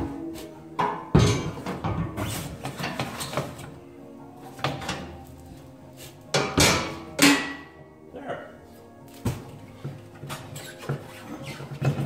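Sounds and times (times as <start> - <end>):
clunks and scrapes on metal lift: 0.4 - 3.8, 10.2 - 12.0.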